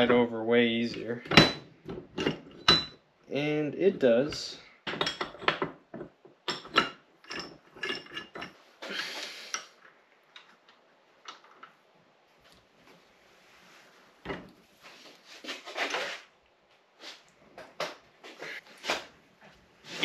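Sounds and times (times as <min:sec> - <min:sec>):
metal clicks and clinks: 0:06.5 - 0:08.6.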